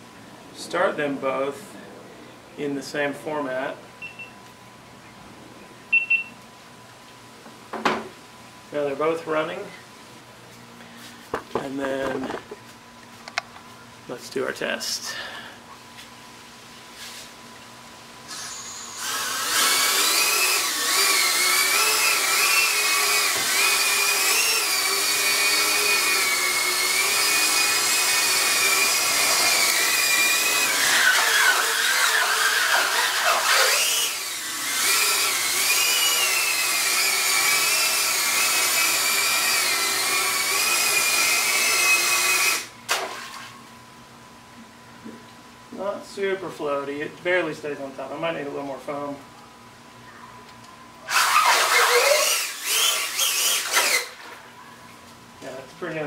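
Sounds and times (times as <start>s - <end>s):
drone motors whining: 18.3s - 42.7s, 51.1s - 54.2s.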